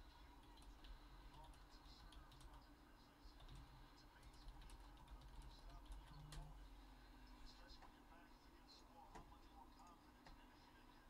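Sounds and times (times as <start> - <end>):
low room hum: 0.0 - 11.0
computer keyboard typing: 0.4 - 2.6, 3.4 - 6.5.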